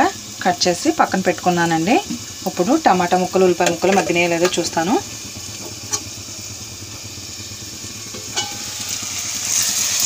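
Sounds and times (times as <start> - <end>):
vegetables sizzling in oil: 0.0 - 10.0
steel plate lid clinking: 8.1 - 9.0
metal spoon stirring: 8.1 - 10.0.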